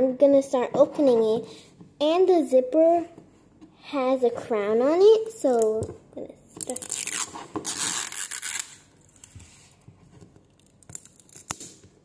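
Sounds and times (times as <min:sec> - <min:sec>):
plastic wrapper ripping: 0:06.6 - 0:09.3, 0:10.6 - 0:11.7
plastic crinkling: 0:06.6 - 0:09.4.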